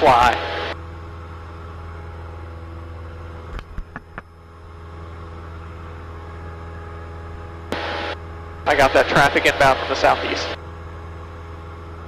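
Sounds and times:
airplane engine and propeller droning: 0.0s - 12.0s.

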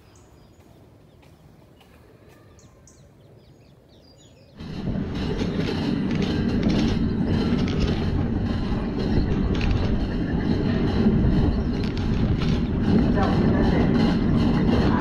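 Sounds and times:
monorail car rumbling on track: 3.7s - 15.0s
fast rattling clicks: 4.6s - 15.0s.

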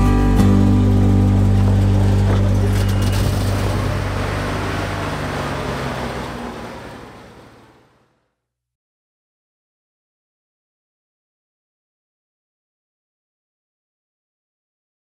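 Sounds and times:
pickup truck engine pulling away: 0.0s - 8.2s.

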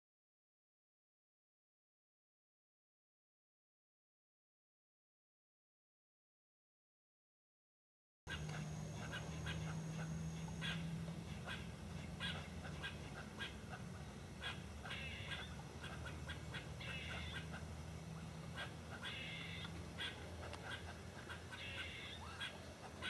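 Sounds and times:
low steady hum: 8.3s - 23.0s.

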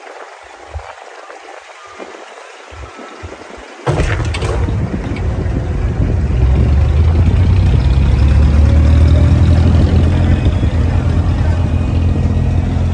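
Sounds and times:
diesel boat engine running: 3.9s - 12.9s.

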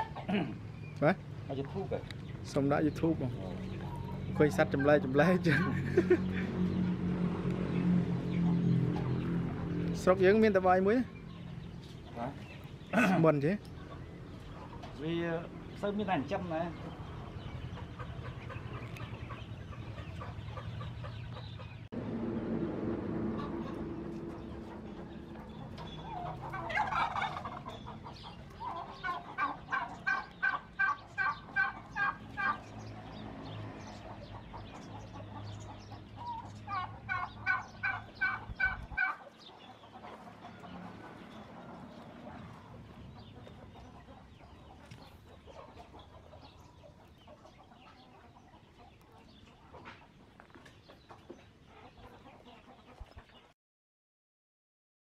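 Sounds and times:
chicken calling: 0.0s - 1.8s, 3.2s - 6.7s, 23.2s - 32.7s, 34.0s - 53.3s.

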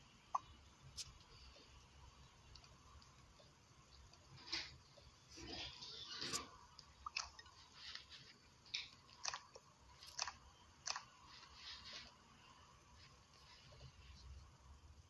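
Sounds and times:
faint sharp clicks and crackles: 0.3s - 5.1s, 6.2s - 12.2s.

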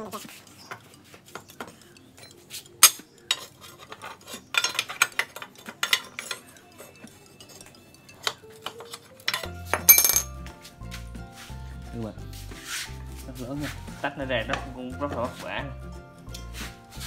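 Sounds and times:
metal bar scraping and clattering: 2.3s - 7.0s.

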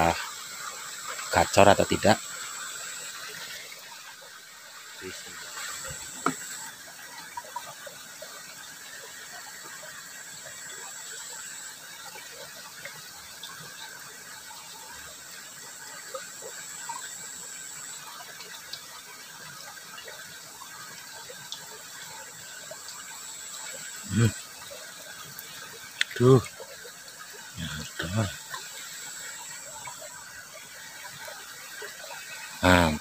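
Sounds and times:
faint ticks and gurgles: 0.0s - 33.0s
water rushing in a ditch: 0.0s - 33.0s
thin high whine: 32.6s - 33.0s.

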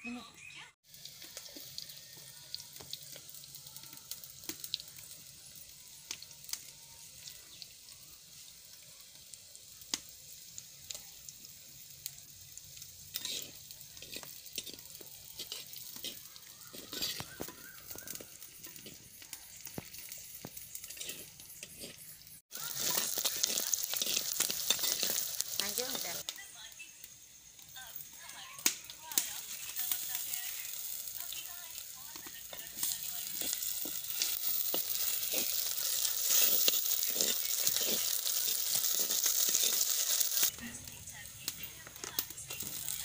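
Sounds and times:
onions sizzling in hot oil: 0.8s - 43.0s
spoon scraping clay pot: 13.1s - 19.1s, 20.7s - 22.2s, 22.9s - 25.3s, 33.3s - 40.5s.

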